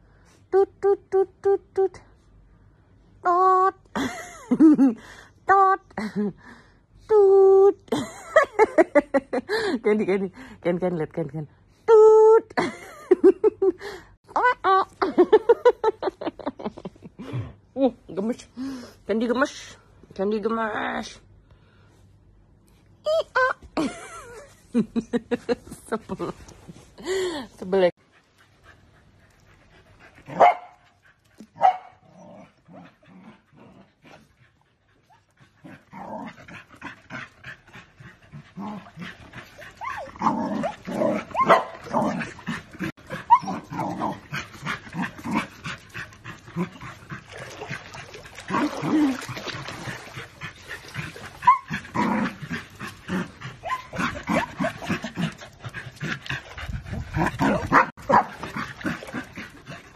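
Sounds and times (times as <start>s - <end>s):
dogs barking: 30.3s - 30.8s, 31.6s - 32.0s, 41.3s - 41.9s, 57.4s - 58.6s.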